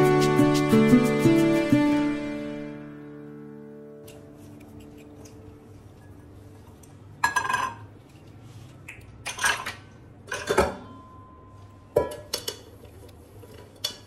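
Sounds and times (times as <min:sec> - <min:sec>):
canisters and lids clinking: 0:09.3 - 0:10.9.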